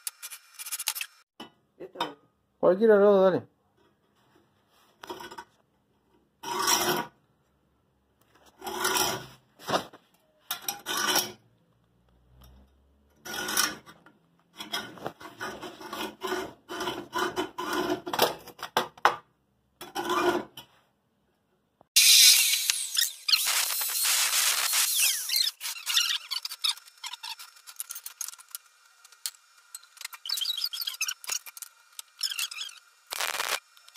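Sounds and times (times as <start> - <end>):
harsh grinding noise: 22.0 - 33.9.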